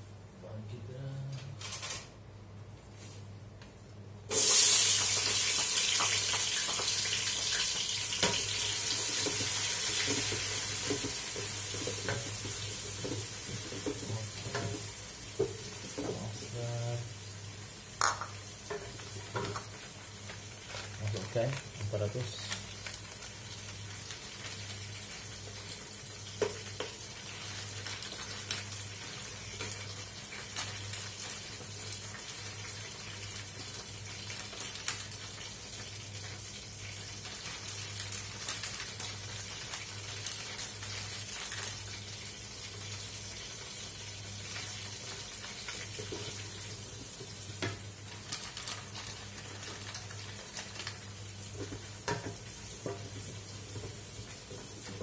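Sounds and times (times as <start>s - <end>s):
plastic packet crinkling: 1.6s - 2.1s, 20.2s - 25.7s, 27.3s - 32.2s, 33.1s - 35.5s, 37.0s - 42.1s, 48.0s - 51.8s
oil sizzling and crackling: 4.3s - 55.0s.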